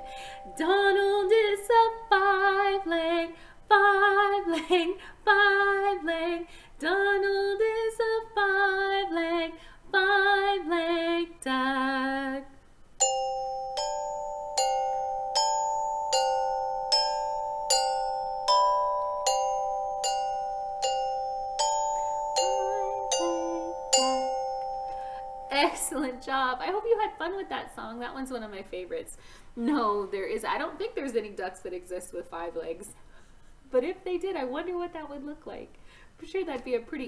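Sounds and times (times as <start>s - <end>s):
mallet instrument notes ringing: 0.0s - 1.2s, 13.0s - 26.2s
woman singing: 0.4s - 12.6s.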